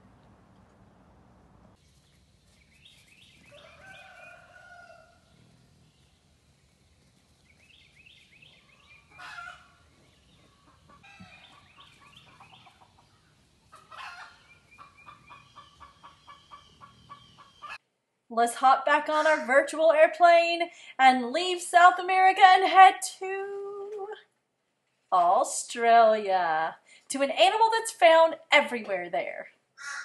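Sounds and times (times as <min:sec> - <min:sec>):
rooster crowing: 0:03.4 - 0:05.6, 0:08.6 - 0:11.8, 0:13.8 - 0:14.6
short chirping calls: 0:07.4 - 0:17.8
hen clucking: 0:08.4 - 0:17.8.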